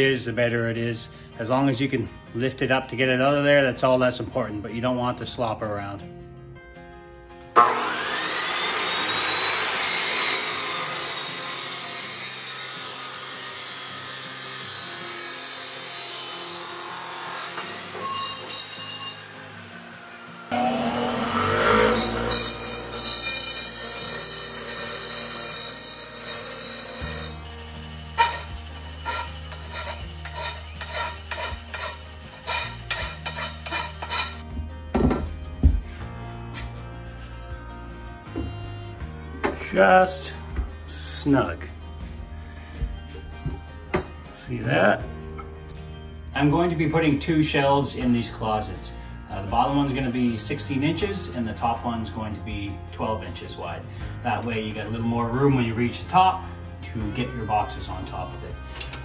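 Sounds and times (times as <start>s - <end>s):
chop saw motor whine: 7.5s - 34.4s
cut-off wheel grinding metal: 7.6s - 34.4s
rod scraping on grinder wheel: 20.6s - 27.5s, 28.1s - 34.4s.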